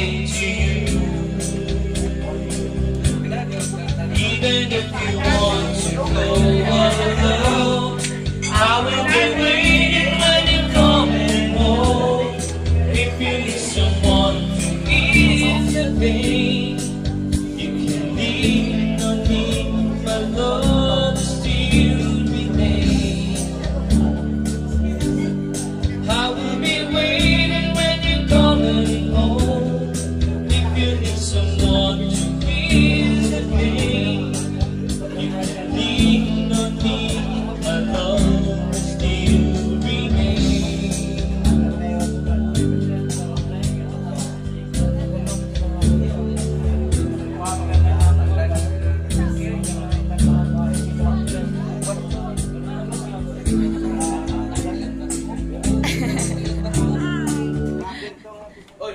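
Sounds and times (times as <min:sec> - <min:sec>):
person singing with vibrato: 0:00.0 - 0:44.3
instrumental backing music: 0:00.0 - 0:58.9.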